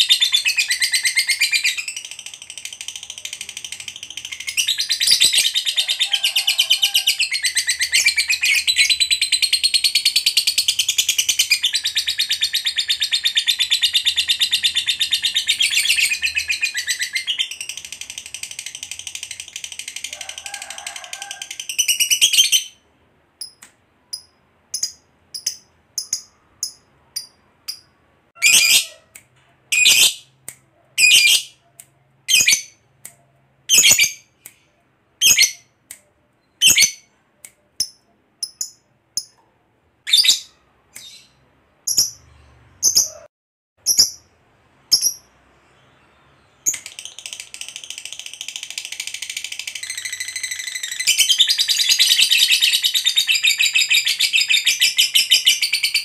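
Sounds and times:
lovebird chattering trill: 23.4s - 29.1s, 43.9s - 44.3s.

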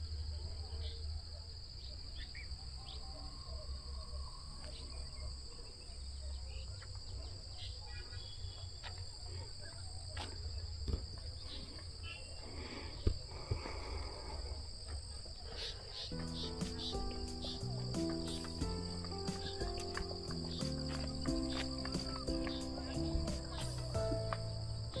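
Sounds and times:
faint chirps: 0.0s - 25.0s
insects shrilling: 15.4s - 25.0s.

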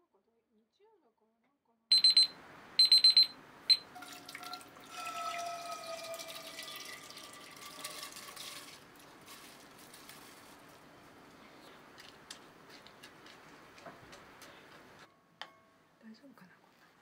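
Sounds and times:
kitchen timer beeping: 1.9s - 4.0s
rice and water pouring and splashing: 4.0s - 11.0s.

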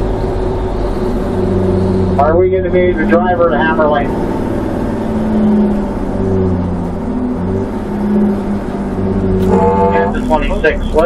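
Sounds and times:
road noise: 0.0s - 11.0s
vehicle engine drone: 0.0s - 11.0s.

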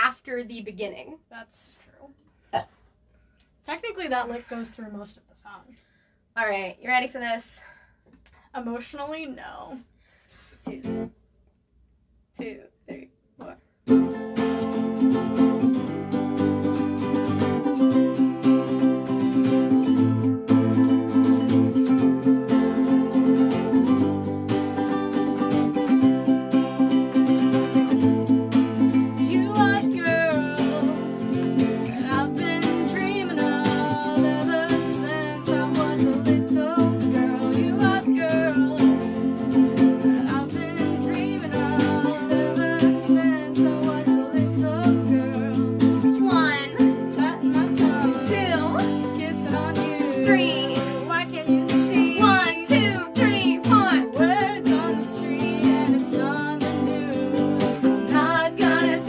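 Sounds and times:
guitar and ukulele strumming: 13.4s - 59.0s
women singing: 28.8s - 59.0s.

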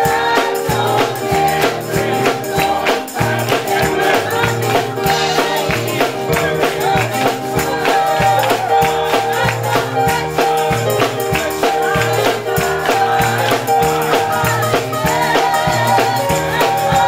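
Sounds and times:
gospel choir singing: 0.0s - 17.0s
musical accompaniment: 0.0s - 17.0s
handclaps: 2.2s - 14.8s.

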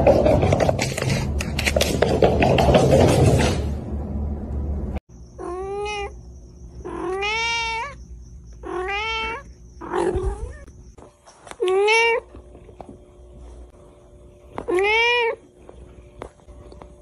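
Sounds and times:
cat meowing: 5.4s - 6.2s, 6.8s - 8.0s, 8.6s - 10.7s, 14.7s - 15.4s.

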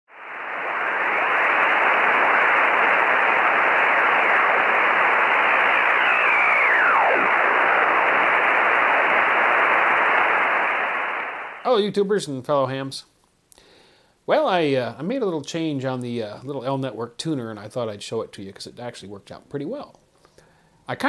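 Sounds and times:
faint descending radio whistles: 0.1s - 11.7s
radio static hiss: 0.1s - 11.8s.

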